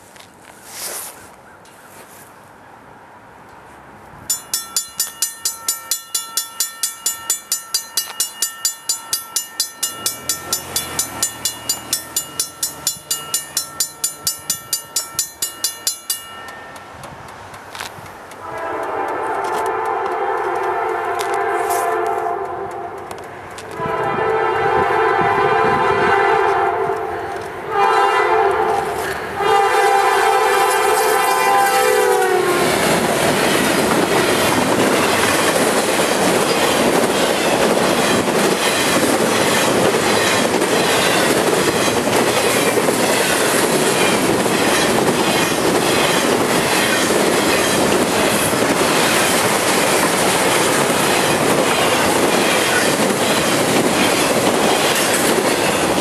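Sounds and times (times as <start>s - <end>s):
crossing bell ringing: 4.3s - 19.2s, 28.7s - 56.0s
locomotive air horn: 18.4s - 23.0s, 23.7s - 33.0s.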